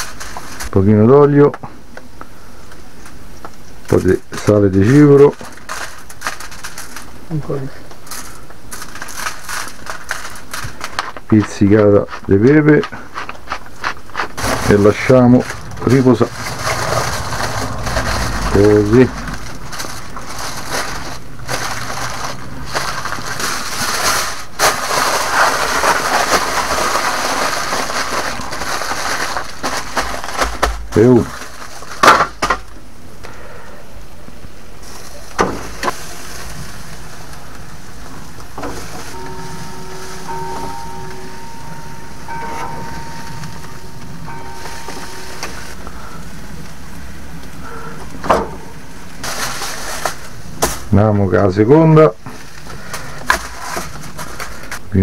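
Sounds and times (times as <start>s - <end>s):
low rumble: 14.3s - 23.6s
steak sizzling on a grill: 35.9s - 39.3s.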